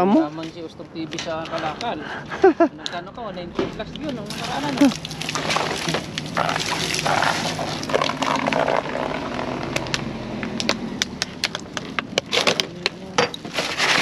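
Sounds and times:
plastic bags crinkling: 11.4 - 14.0.

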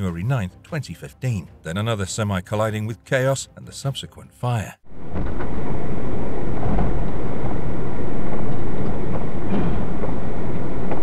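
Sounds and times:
truck engine and road noise: 4.9 - 11.0.

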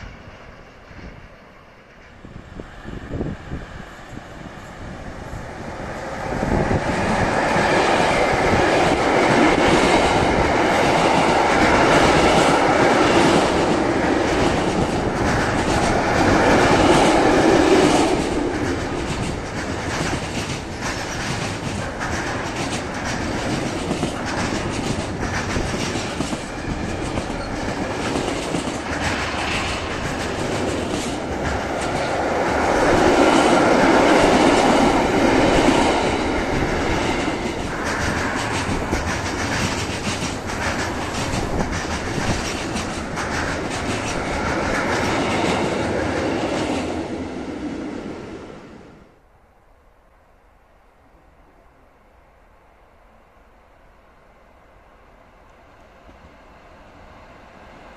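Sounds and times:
freight train passing: 0.0 - 57.9
wheels clattering over rail joints: 36.0 - 45.8.

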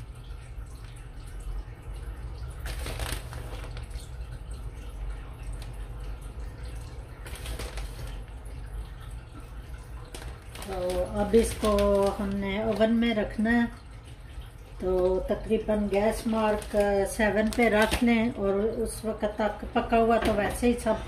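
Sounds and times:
rustling: 7.3 - 8.2.

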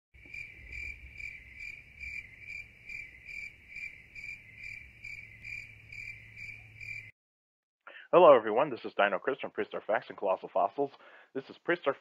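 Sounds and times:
crickets chirping: 0.2 - 7.1.

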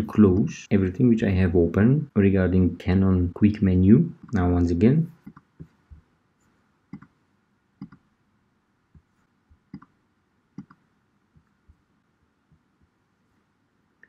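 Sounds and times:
computer mouse clicks: 5.2 - 5.7, 6.9 - 7.2, 7.8 - 8.1, 9.7 - 10.0, 10.6 - 10.8.

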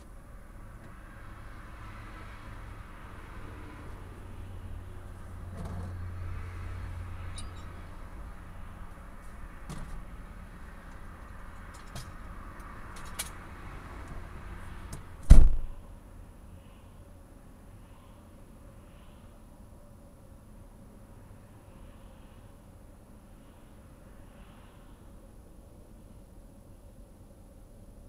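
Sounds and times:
freeway traffic rushing: 0.0 - 28.0
car door slamming: 15.2 - 15.7.

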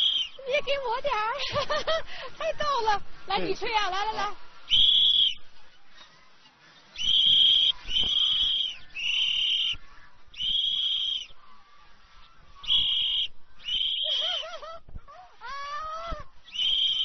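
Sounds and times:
whistle blasts: 0.0 - 0.4, 4.7 - 5.4, 7.0 - 11.4, 12.6 - 14.6, 16.4 - 17.0.

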